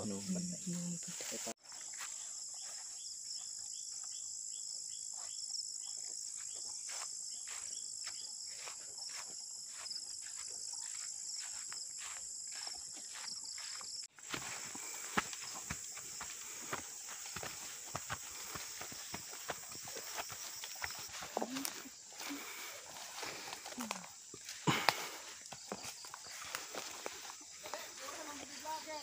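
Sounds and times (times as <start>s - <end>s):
insects trilling: 0.0s - 29.0s
footsteps swishing through grass: 6.9s - 29.0s.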